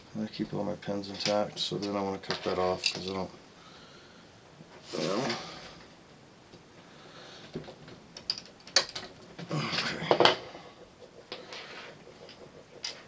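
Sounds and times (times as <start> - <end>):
wires rustling: 4.5 - 13.0.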